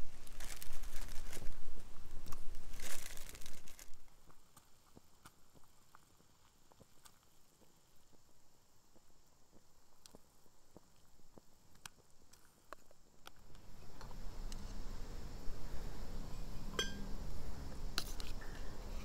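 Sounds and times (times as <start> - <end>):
rustling crinkling handling noise: 0.0 - 4.7.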